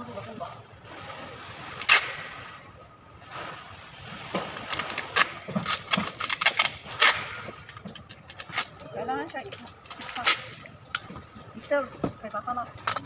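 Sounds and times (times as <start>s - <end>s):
packing tape tearing: 1.8s - 2.3s, 4.4s - 11.1s
tape dispenser crackles and clicks: 1.8s - 2.3s, 4.5s - 11.5s.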